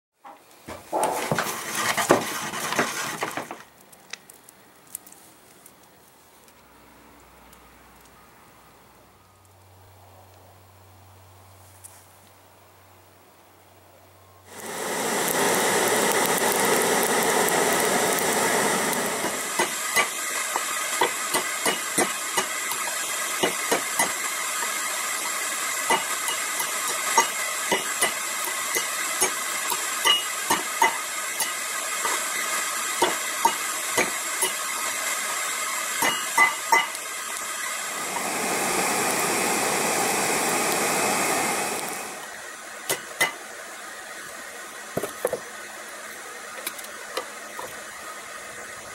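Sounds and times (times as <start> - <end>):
forge hissing: 0.4 - 8.1, 14.4 - 48.9
hammer striking metal: 21.0 - 22.5, 25.9 - 32.2, 36.0 - 37.0.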